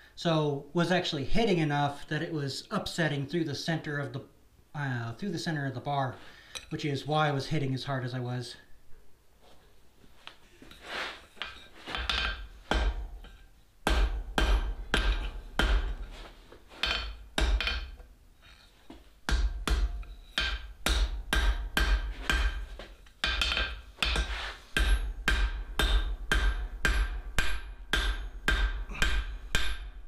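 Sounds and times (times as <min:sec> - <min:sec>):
hammer striking steel on anvil: 0:11.4 - 0:16.2, 0:16.8 - 0:18.0, 0:19.3 - 0:30.0.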